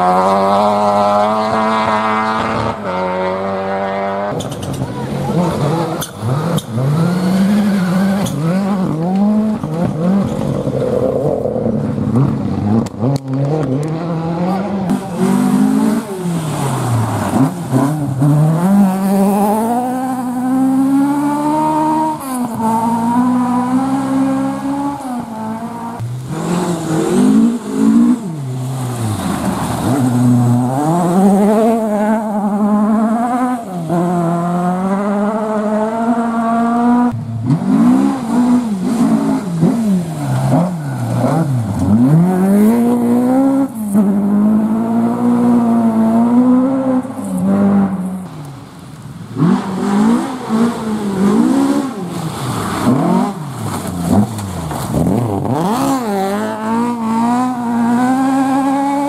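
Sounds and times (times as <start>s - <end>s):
rally car engine revving: 0.0s - 59.0s.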